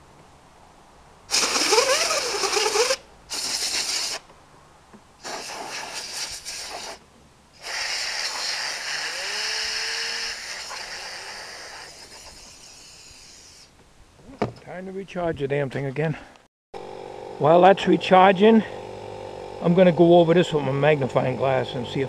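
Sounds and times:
compressed air blow gun hissing: 0:01.3 - 0:04.2, 0:05.2 - 0:07.0, 0:07.6 - 0:13.7.

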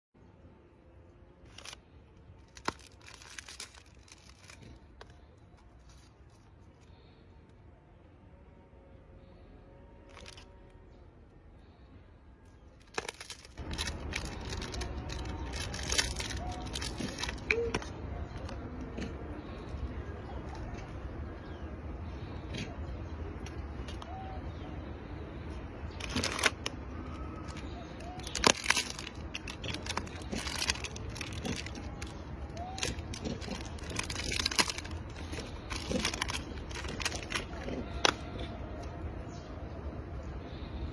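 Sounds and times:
plastic wrapper crinkling: 0:01.4 - 0:06.9, 0:10.0 - 0:10.5, 0:12.8 - 0:18.6, 0:25.9 - 0:38.2.

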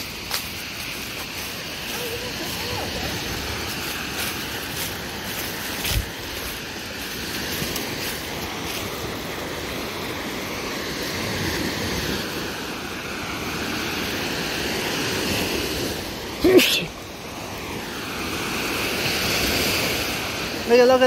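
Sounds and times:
lake waves washing in: 0:00.0 - 0:21.0
wind buffeting microphone: 0:01.8 - 0:09.5.

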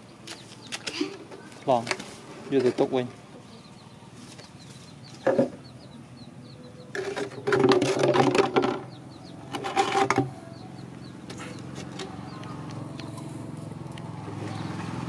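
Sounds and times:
loud pitched bird calls: 0:00.0 - 0:15.0
small birds chirping: 0:00.0 - 0:15.0.

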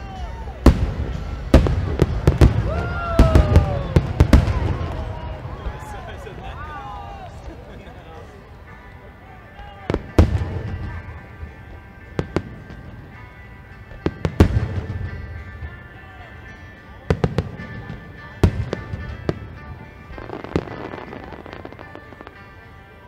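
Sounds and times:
music playing: 0:00.0 - 0:23.0
fireworks booming: 0:00.6 - 0:06.6, 0:09.8 - 0:15.8, 0:17.1 - 0:22.6.

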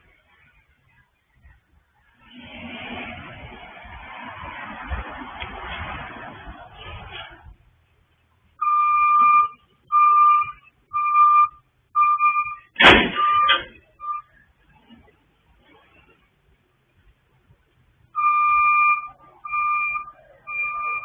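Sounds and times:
reverse alarm beeping: 0:08.6 - 0:14.3, 0:18.2 - 0:21.0.

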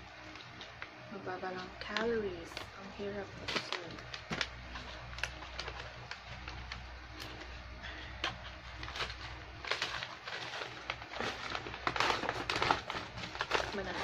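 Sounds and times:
crunchy crisps being chewed: 0:01.6 - 0:14.0.

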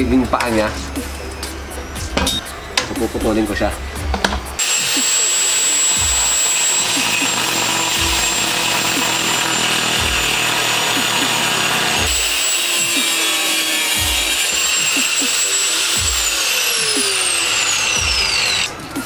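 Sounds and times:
angle grinder cutting steel: 0:04.6 - 0:19.0.

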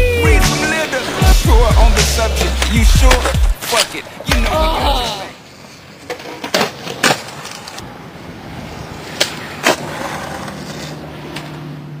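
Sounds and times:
skateboard wheels rolling on pavement: 0:00.1 - 0:12.0
skateboard clacks: 0:09.0 - 0:11.6.

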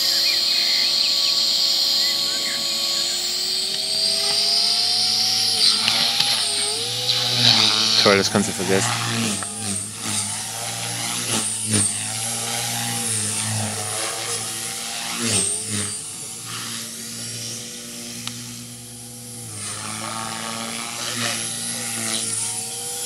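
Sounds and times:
model helicopter rotor whine: 0:00.0 - 0:23.0.

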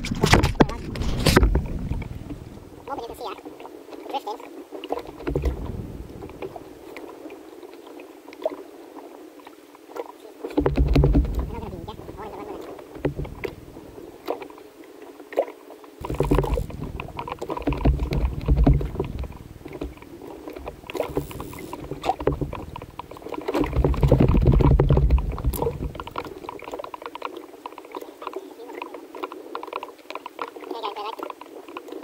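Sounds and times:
low rumbling: 0:00.0 - 0:03.2, 0:05.1 - 0:06.9, 0:10.6 - 0:14.2, 0:16.0 - 0:26.8
small waves slapping a boat: 0:00.0 - 0:32.0
splashy clicks: 0:10.0 - 0:14.5, 0:15.4 - 0:32.0.

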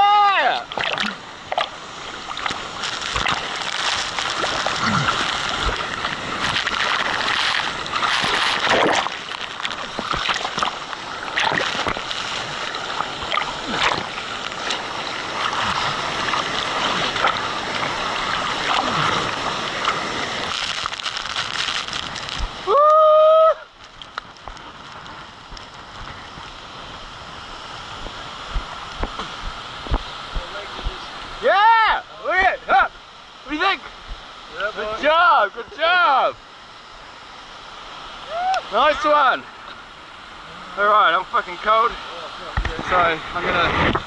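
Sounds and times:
creek water rushing: 0:00.0 - 0:44.0
waterfall rushing and splashing: 0:00.0 - 0:44.0.

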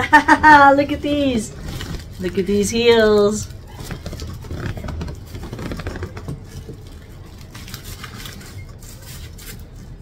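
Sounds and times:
paper wrapping rustling: 0:01.1 - 0:10.0.

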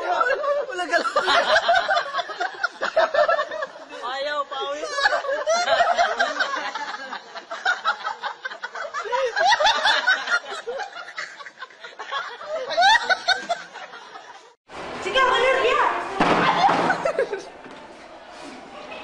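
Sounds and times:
people laughing hard: 0:00.0 - 0:04.0, 0:04.6 - 0:14.6, 0:16.5 - 0:17.6.

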